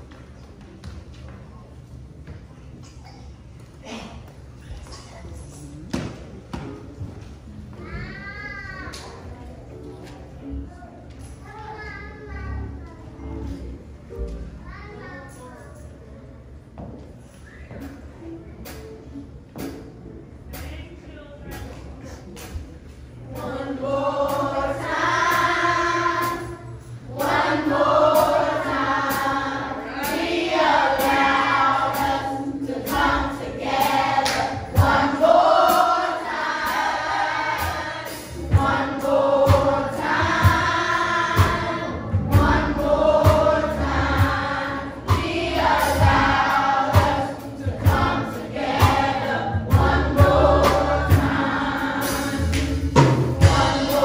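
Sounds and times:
children's choir singing: 23.2s - 54.0s.

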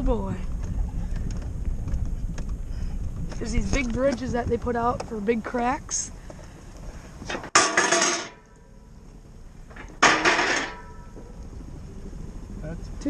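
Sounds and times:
loud metallic clanks: 7.3s - 8.6s, 9.7s - 11.3s.

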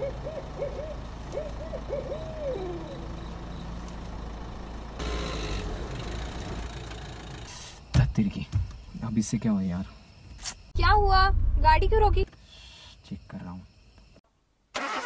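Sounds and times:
owl hooting: 0.0s - 3.3s
car engine rumble: 0.0s - 9.3s, 10.7s - 12.3s.

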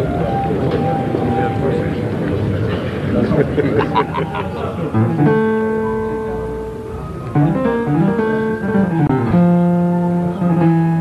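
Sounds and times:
plucked guitar music: 3.8s - 11.0s.

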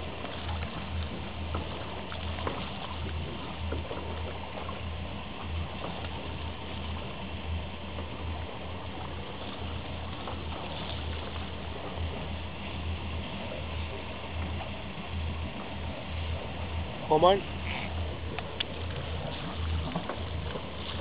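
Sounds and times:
sea water washing against hull: 0.0s - 21.0s
faint clicks: 18.3s - 19.0s.

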